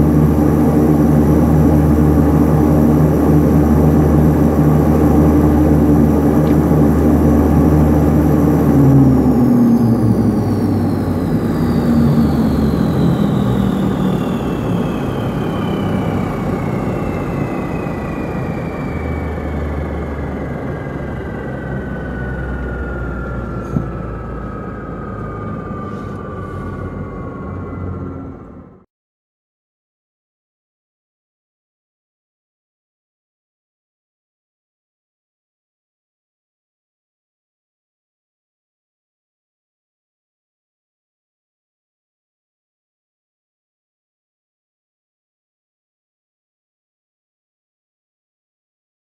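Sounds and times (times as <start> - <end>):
turboprop engine winding down: 0.0 - 28.9.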